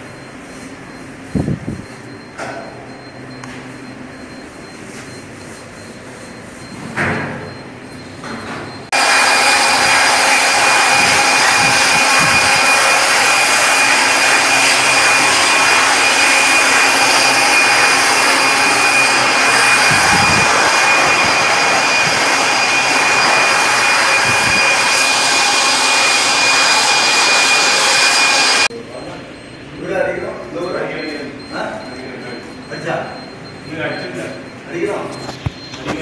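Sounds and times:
diesel generator running: 0:08.9 - 0:34.1
high steady whine: 0:08.9 - 0:34.4.

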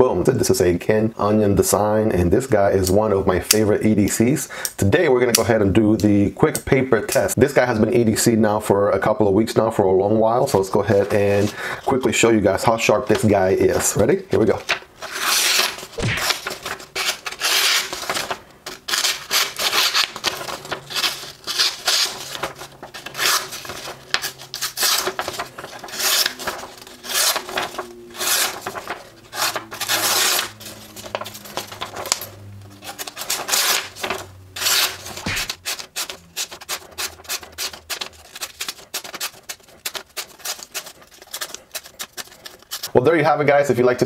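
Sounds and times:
knife slicing through paper: 0:15.0 - 0:31.3, 0:32.9 - 0:42.9.

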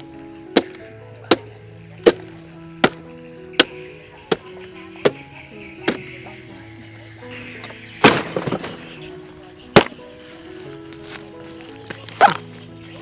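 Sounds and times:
background music: 0:00.0 - 0:13.0
hatchet chopping wood: 0:00.5 - 0:05.2, 0:09.8 - 0:10.0.

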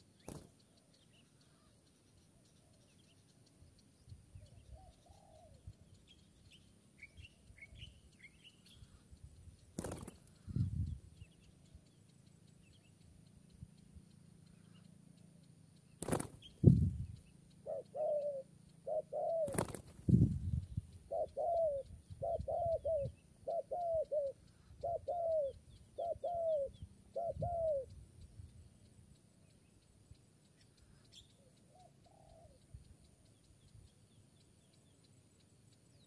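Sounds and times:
dove cooing: 0:04.7 - 0:05.6, 0:17.6 - 0:19.8, 0:21.0 - 0:27.9, 0:31.7 - 0:32.6.

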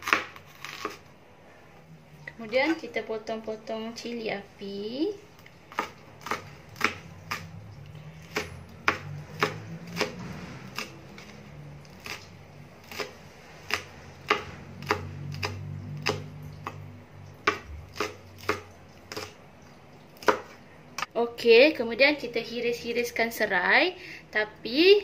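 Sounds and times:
knife chopping on plastic board: 0:00.0 - 0:01.0, 0:05.7 - 0:07.5, 0:08.2 - 0:10.9, 0:13.7 - 0:16.8, 0:17.4 - 0:19.4, 0:20.2 - 0:20.6.

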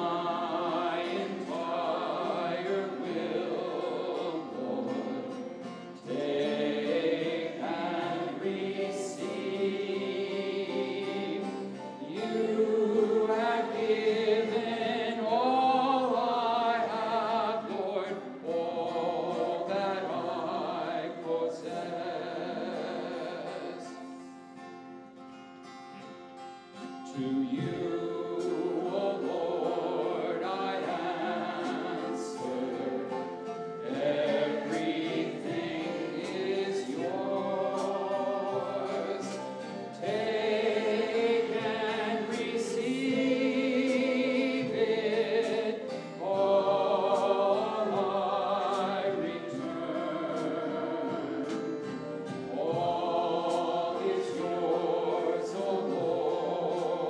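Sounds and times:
group singing a hymn: 0:00.0 - 0:24.6, 0:26.8 - 0:57.0
strummed acoustic guitar: 0:00.0 - 0:57.0
flute: 0:27.1 - 0:44.9, 0:46.3 - 0:57.0.

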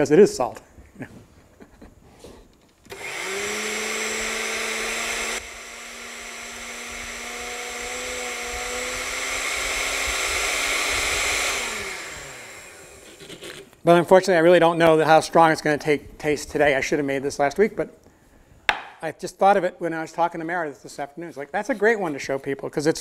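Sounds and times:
electric blender motor running: 0:02.9 - 0:13.4.

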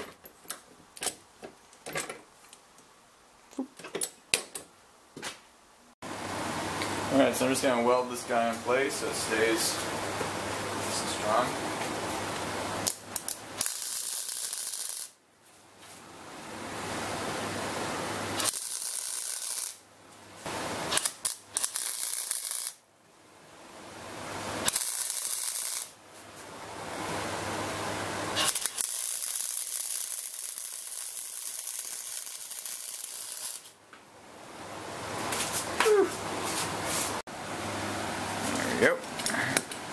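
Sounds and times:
electric arc welding hiss: 0:10.8 - 0:15.2, 0:18.2 - 0:22.8, 0:24.4 - 0:26.0, 0:28.3 - 0:33.8.

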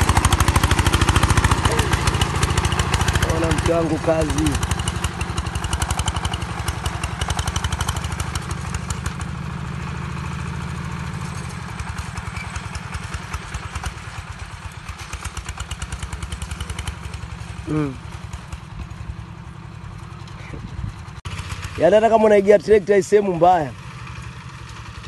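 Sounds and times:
diesel tiller engine running: 0:00.0 - 0:25.0.

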